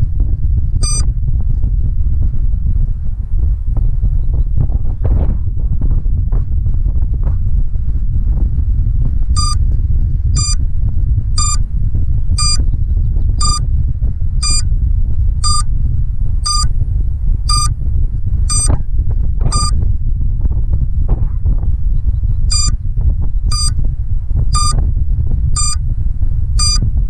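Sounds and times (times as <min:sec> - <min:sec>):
wind buffeting microphone: 0:00.0 - 0:27.0
short high buzzer beeps: 0:00.8 - 0:01.0, 0:10.4 - 0:10.6, 0:11.4 - 0:11.6, 0:12.4 - 0:12.6, 0:13.4 - 0:13.6, 0:14.4 - 0:14.6, 0:15.4 - 0:15.6, 0:16.4 - 0:16.7, 0:17.5 - 0:17.7, 0:18.5 - 0:18.8, 0:19.5 - 0:19.8, 0:22.5 - 0:22.7, 0:23.5 - 0:23.7, 0:24.6 - 0:24.8, 0:25.6 - 0:25.8, 0:26.6 - 0:26.8.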